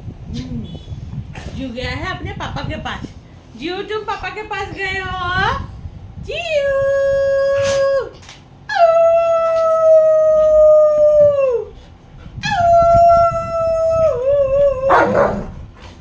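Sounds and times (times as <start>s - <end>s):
woman howling like a dog: 8.7s - 11.7s, 12.4s - 15.5s.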